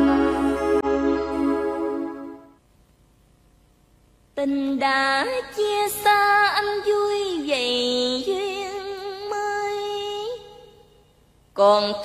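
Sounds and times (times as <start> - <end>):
woman singing with vibrato: 4.4 - 10.8, 11.6 - 12.0.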